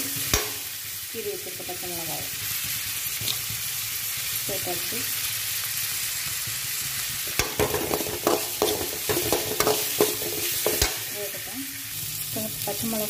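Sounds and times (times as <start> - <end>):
oil sizzling in a pan: 0.0 - 13.0
steel ladle clanking against a pan: 0.3 - 0.7, 7.3 - 11.2.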